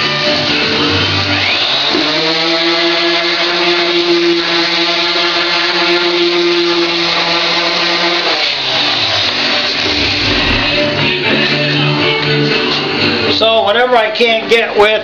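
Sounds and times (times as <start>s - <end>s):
electric sander humming: 9.8s - 11.0s.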